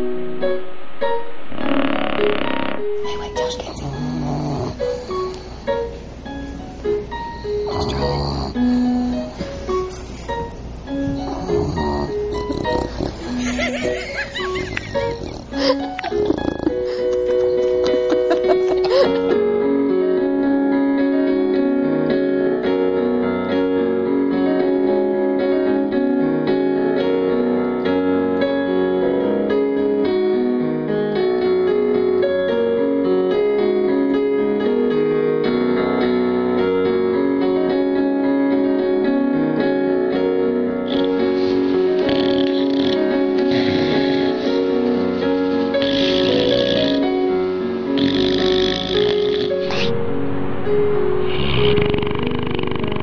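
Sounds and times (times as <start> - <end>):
hissing noise: 0.0 - 3.8, 47.9 - 53.0
piano music: 0.0 - 53.0.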